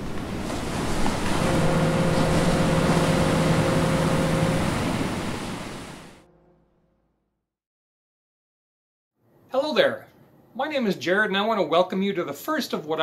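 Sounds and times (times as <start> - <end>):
sea surf: 0.0 - 6.2
low steady tone: 1.0 - 7.2.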